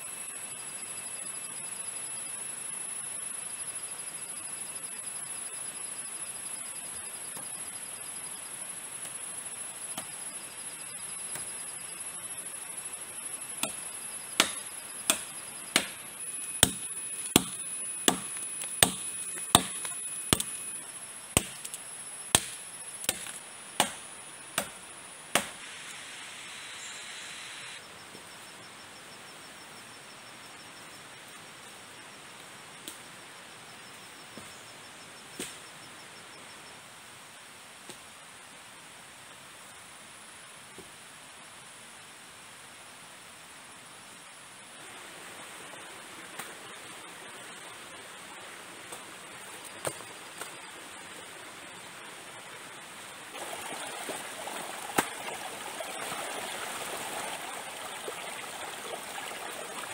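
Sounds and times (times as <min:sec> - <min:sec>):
insects trilling: 0:00.0 - 0:36.9, 0:44.3 - 0:59.9
blade chopping wood: 0:13.6 - 0:13.8, 0:14.4 - 0:16.0, 0:16.6 - 0:20.6, 0:21.4 - 0:25.6.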